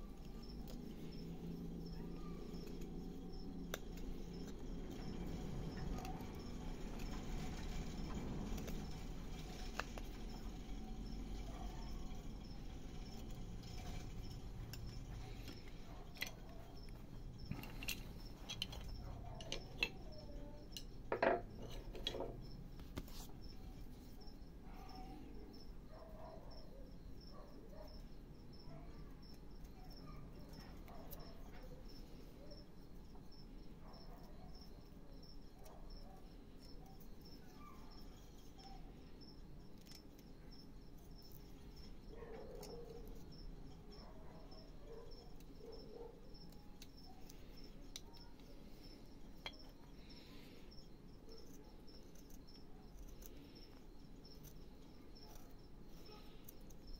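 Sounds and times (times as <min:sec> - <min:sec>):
knife whittling wood: 0:00.0 - 0:24.1.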